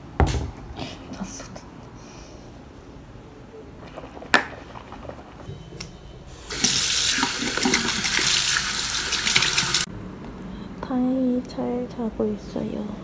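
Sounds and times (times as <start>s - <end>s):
tap water running into sink: 6.5s - 9.9s.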